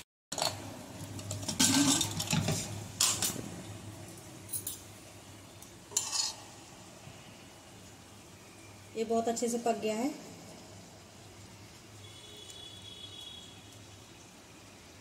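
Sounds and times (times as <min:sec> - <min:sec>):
steel spoon scraping a pot: 0:05.9 - 0:06.4.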